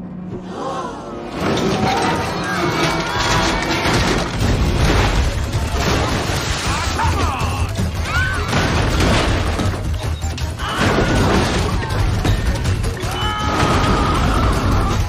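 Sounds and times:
film score music: 0:00.0 - 0:15.0
people screaming: 0:00.5 - 0:04.4, 0:06.6 - 0:08.8, 0:10.4 - 0:12.1, 0:13.0 - 0:15.0
glass bowl crashing and rumbling: 0:01.4 - 0:07.2.

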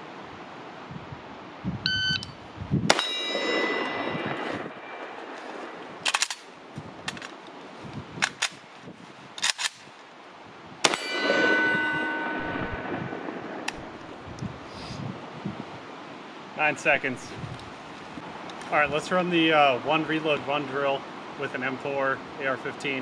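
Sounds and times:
shot timer beep: 0:01.9 - 0:02.3
ringing tone: 0:03.0 - 0:05.0, 0:10.9 - 0:13.1
rifle magazine change clicks: 0:06.0 - 0:07.5, 0:08.2 - 0:08.6, 0:09.4 - 0:09.8
rifle shots: 0:10.8 - 0:11.7.

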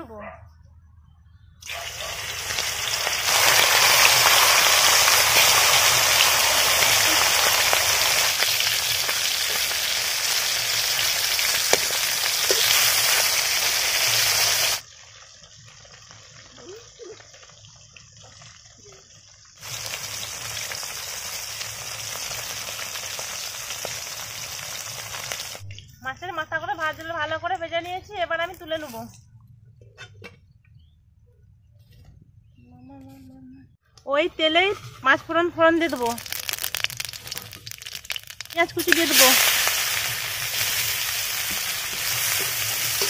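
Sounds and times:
fish frying in hot oil: 0:01.6 - 0:25.6, 0:35.8 - 0:43.0.

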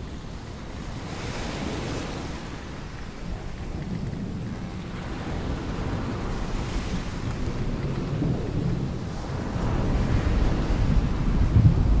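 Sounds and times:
rain and wind hiss: 0:00.0 - 0:12.0
low rumble of thunder: 0:03.1 - 0:12.0.

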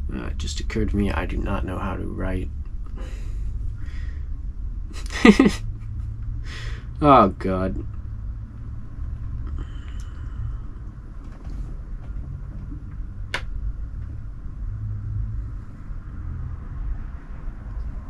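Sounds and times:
low rumble: 0:00.0 - 0:18.0.

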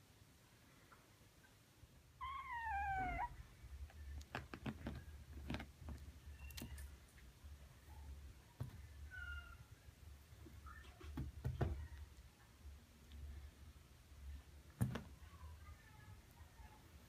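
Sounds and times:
kitten meowing: 0:02.2 - 0:03.4.

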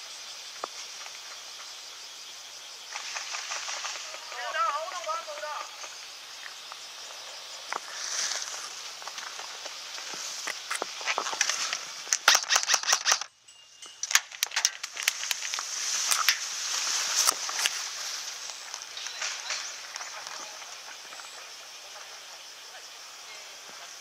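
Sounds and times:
steady high hiss: 0:00.0 - 0:24.0
grass rustling: 0:02.9 - 0:13.3, 0:14.0 - 0:21.6
airsoft gun shots: 0:12.2 - 0:13.3.

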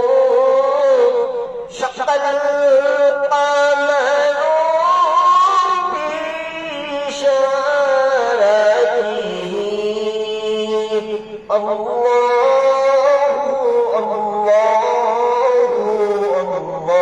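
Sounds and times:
man singing into microphone: 0:00.0 - 0:17.0.

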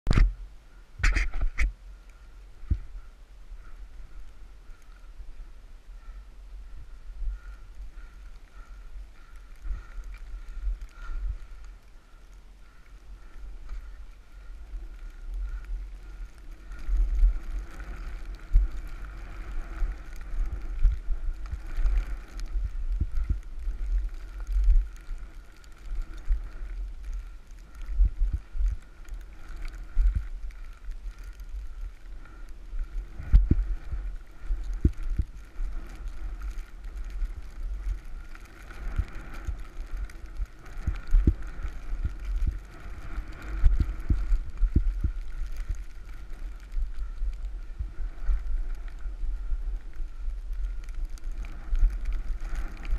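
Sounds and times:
wind rumble on microphone: 0:00.1 - 0:52.9.

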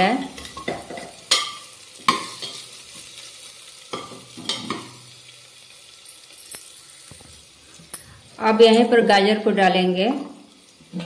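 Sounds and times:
faint sizzle: 0:00.0 - 0:11.0.

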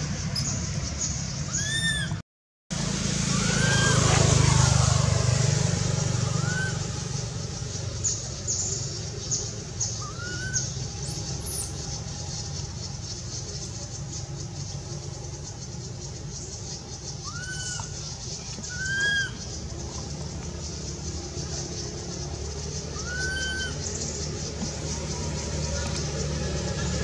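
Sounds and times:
birds chirping: 0:00.0 - 0:02.2, 0:03.2 - 0:27.0
vehicle engine passing: 0:02.7 - 0:27.0.

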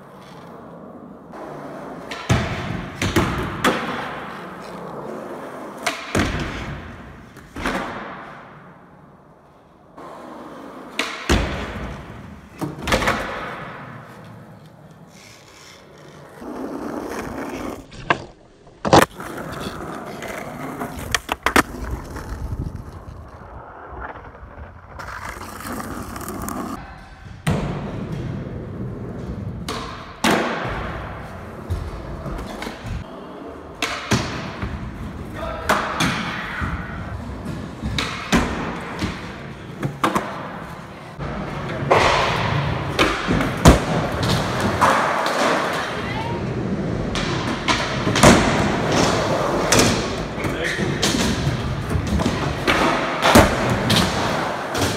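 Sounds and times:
skateboard wheels rolling on asphalt: 0:00.0 - 0:26.9, 0:36.8 - 0:54.9
skateboard landing: 0:01.3 - 0:08.9, 0:10.0 - 0:35.1, 0:35.7 - 0:54.9
skateboard clacks: 0:10.8 - 0:26.8.

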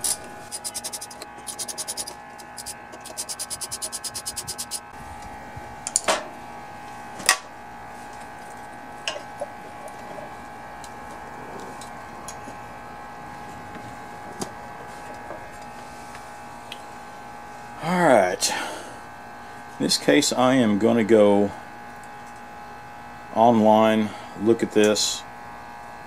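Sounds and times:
socket ratchet clicking: 0:00.0 - 0:04.8
faint steady hum: 0:00.0 - 0:06.9.

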